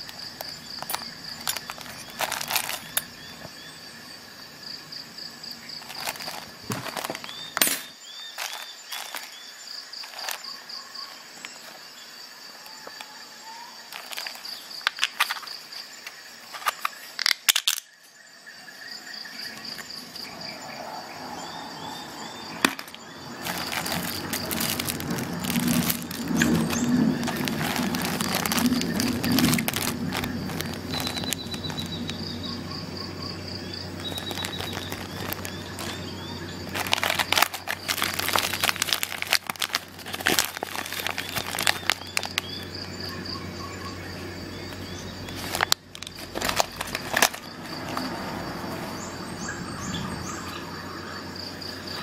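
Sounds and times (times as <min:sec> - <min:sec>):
plastic packaging crinkling: 0:00.0 - 0:03.5, 0:05.7 - 0:11.8, 0:13.8 - 0:15.5, 0:16.4 - 0:17.8, 0:22.6 - 0:32.4, 0:33.8 - 0:42.8, 0:45.2 - 0:48.2.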